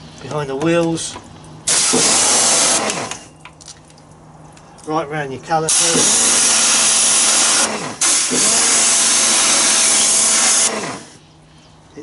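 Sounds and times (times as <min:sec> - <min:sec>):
pressure washer spraying water: 0:01.7 - 0:03.1, 0:05.7 - 0:11.2
faint steady hum: 0:11.0 - 0:12.0.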